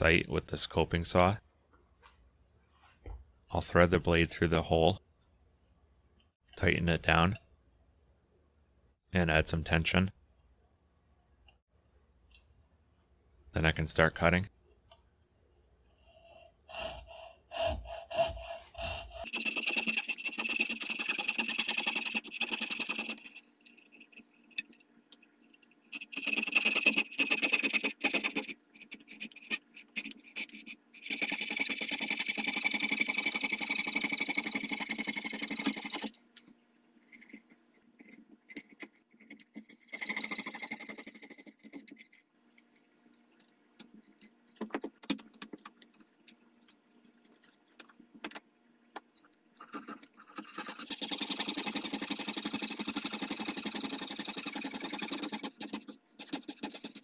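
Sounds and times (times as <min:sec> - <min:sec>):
saw scraping through wood: 0:16.7 - 0:24.2.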